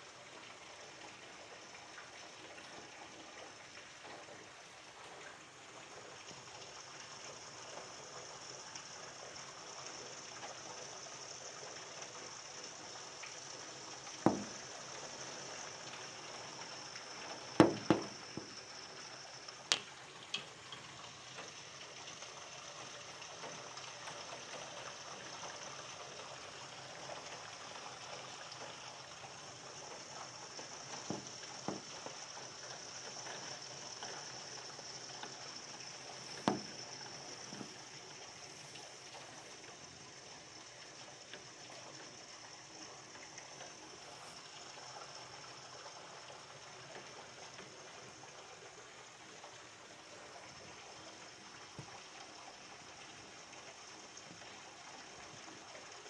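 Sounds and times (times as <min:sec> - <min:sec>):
water spilling off a gutter: 0:00.0 - 0:56.0
heavy rain pouring: 0:10.6 - 0:53.6
sharp knocks: 0:14.3 - 0:14.6, 0:17.6 - 0:18.6, 0:31.1 - 0:31.9, 0:36.4 - 0:36.8.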